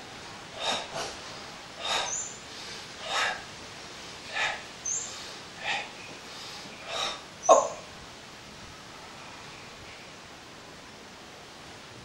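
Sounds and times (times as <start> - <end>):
person breathing hard through nose: 0.5 - 3.5, 4.2 - 7.3.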